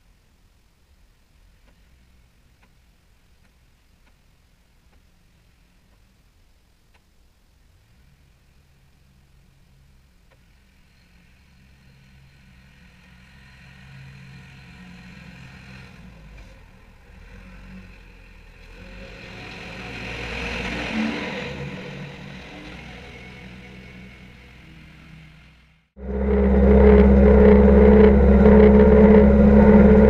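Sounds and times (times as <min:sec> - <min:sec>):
tractor engine drone passing by: 0:10.9 - 0:30.0.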